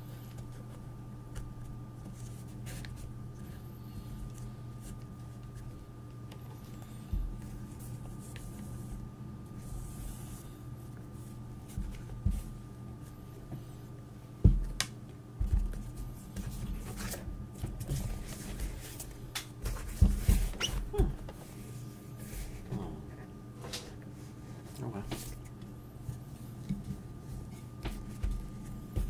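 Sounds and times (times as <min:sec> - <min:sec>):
soft handling thumps: 0:11.6 - 0:12.6, 0:19.6 - 0:21.4, 0:26.1 - 0:29.0.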